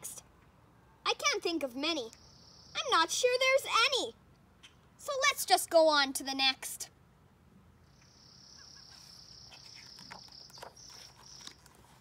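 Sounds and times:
book pages turning: 9.6 - 12.0.

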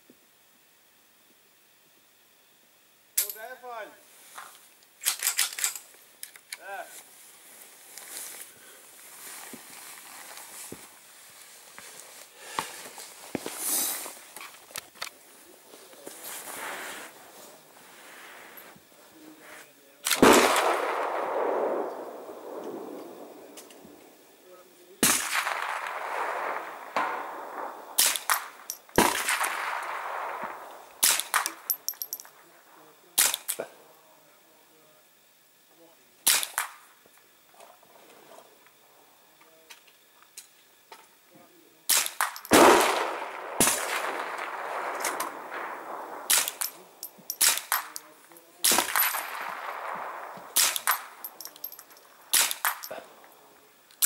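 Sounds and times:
suppressed rifle shots echoing: 20.1 - 24.2, 25.0 - 32.2, 41.9 - 53.0.

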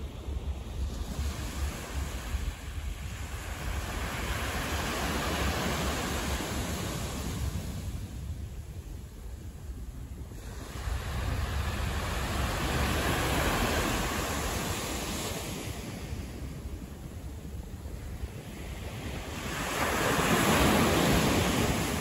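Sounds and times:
wind rumble on microphone: 0.0 - 22.0.

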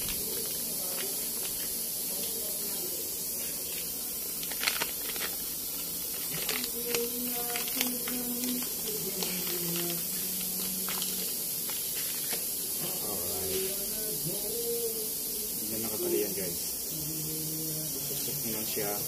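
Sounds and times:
plastic packaging crinkling: 0.0 - 2.3, 3.8 - 12.5
steady hiss: 0.0 - 19.0.

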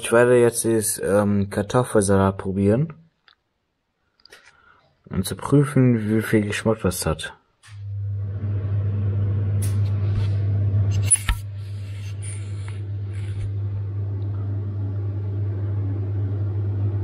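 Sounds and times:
low hum: 7.7 - 17.0.

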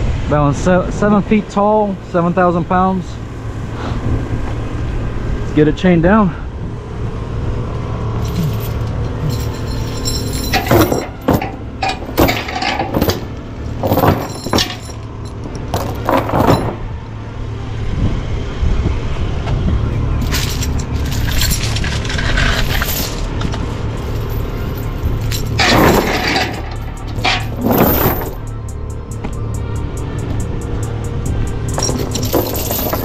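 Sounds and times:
steady low hum: 0.0 - 33.0
steel chains clanking: 8.2 - 16.9, 20.1 - 33.0.

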